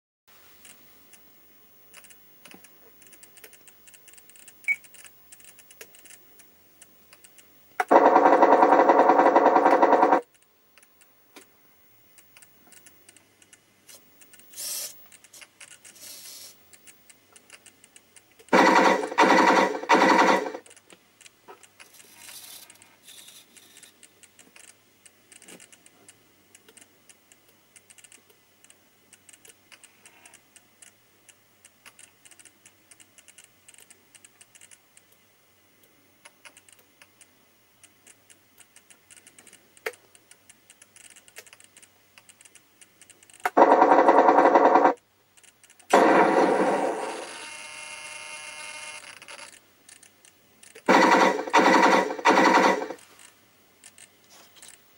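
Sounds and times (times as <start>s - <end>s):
short high hiss: 13.9s - 15.0s, 15.9s - 16.6s.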